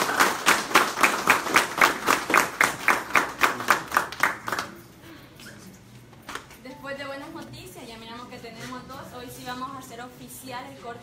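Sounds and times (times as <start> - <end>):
people applauding: 0.0 - 5.0.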